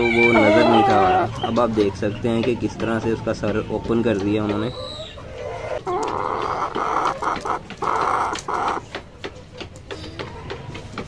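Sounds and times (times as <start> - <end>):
chicken harsh raspy calls: 0.0 - 1.7, 4.6 - 9.0.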